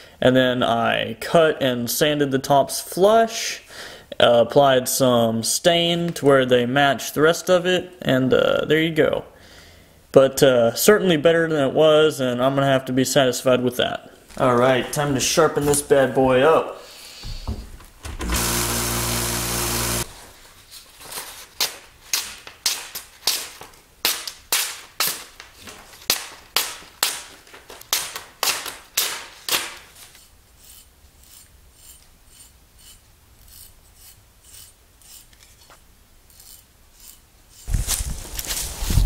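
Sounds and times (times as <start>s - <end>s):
belt sander running: 18.0s - 20.1s
hatchet slicing paper: 21.2s - 30.2s
blade scraping hair off skin: 29.0s - 38.9s.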